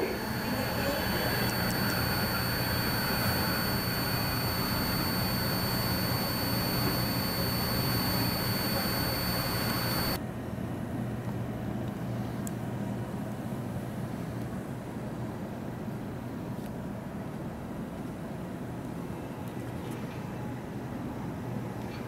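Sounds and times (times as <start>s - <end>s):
terminal hall hum: 0.0s - 10.6s
train car hum with whine: 0.0s - 22.0s.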